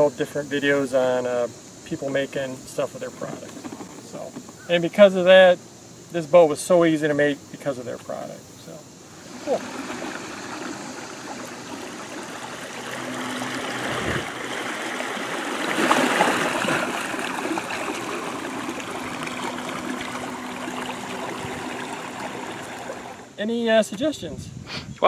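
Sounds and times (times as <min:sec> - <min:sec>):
water rushing and splashing: 0:09.1 - 0:23.4.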